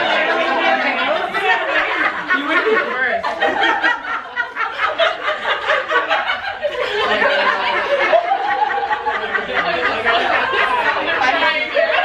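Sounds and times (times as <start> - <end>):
group of women laughing: 0.0 - 12.0.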